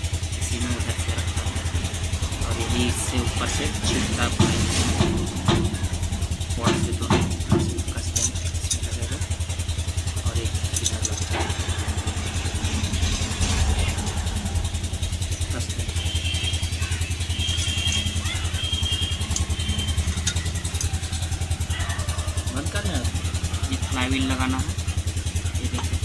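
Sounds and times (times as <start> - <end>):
engine hum with fast pulse: 0.0 - 26.0
light metal clicks: 19.3 - 21.1.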